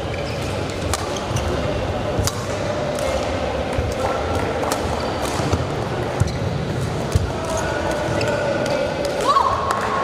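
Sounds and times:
shoe squeaks: 0.0s - 1.7s, 6.2s - 6.6s
echoing voices in a hall: 0.0s - 10.0s.

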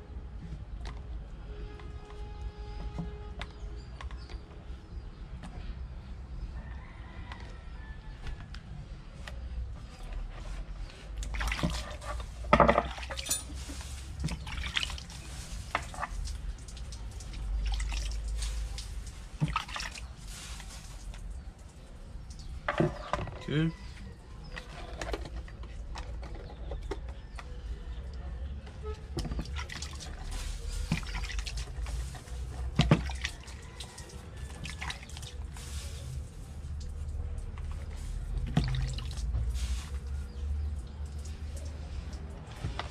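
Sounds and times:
water splashing and dripping: 11.0s - 23.1s, 27.6s - 42.9s.

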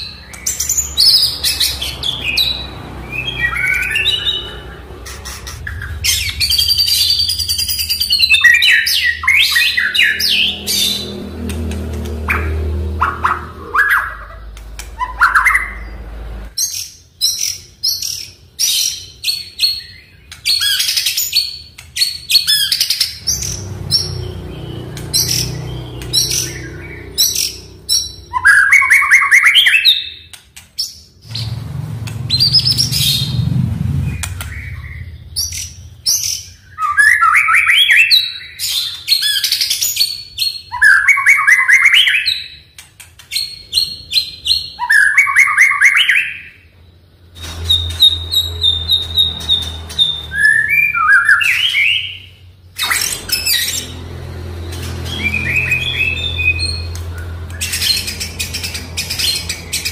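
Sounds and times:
bird singing whistles and trills: 0.0s - 11.2s, 16.6s - 31.6s, 34.1s - 42.7s, 43.3s - 46.7s, 47.4s - 54.0s
low hum: 4.2s - 16.6s, 31.2s - 36.2s, 52.9s - 59.9s.

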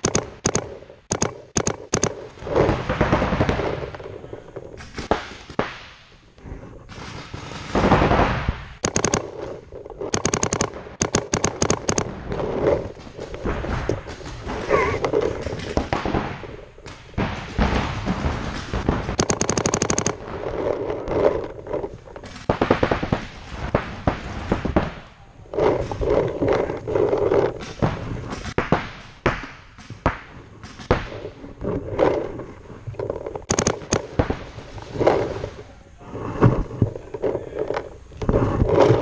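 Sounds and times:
paintball markers firing rapidly: 0.0s - 5.8s, 8.8s - 16.3s, 18.5s - 32.3s, 33.0s - 35.5s.

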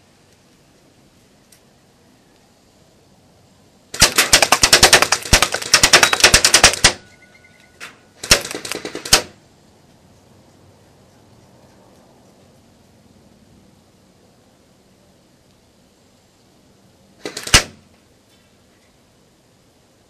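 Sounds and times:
airsoft gun firing full-auto: 3.9s - 7.1s, 8.2s - 9.4s, 17.2s - 17.9s.

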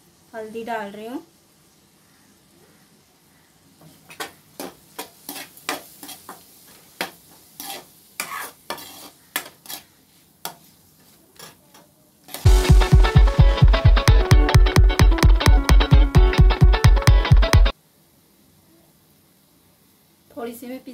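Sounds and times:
metal spatula scraping a pan: 3.9s - 12.5s
loud music with a beat: 12.5s - 17.7s.

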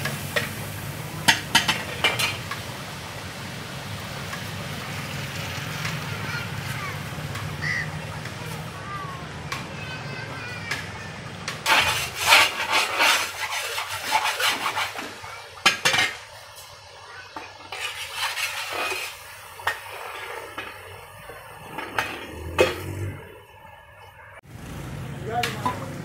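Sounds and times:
metal ladle scraping metal pot: 11.6s - 16.2s, 17.7s - 23.2s.

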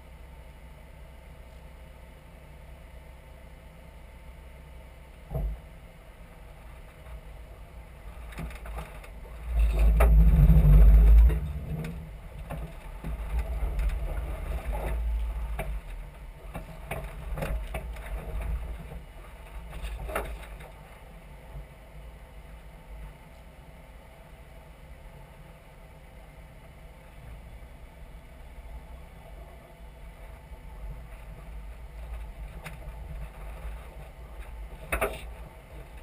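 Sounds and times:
engine and tyre rumble: 0.0s - 36.0s
wind rumbling on microphone: 6.5s - 22.1s.

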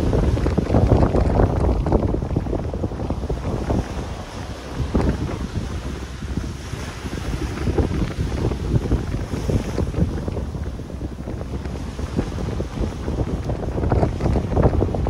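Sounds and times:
small waves breaking: 0.0s - 15.0s
wind buffeting microphone: 0.0s - 15.0s.

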